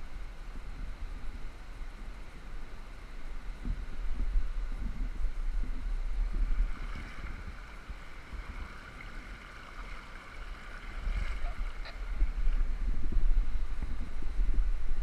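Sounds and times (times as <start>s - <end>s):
wind buffeting microphone: 0.0s - 15.0s
river rushing and splashing: 6.4s - 12.6s.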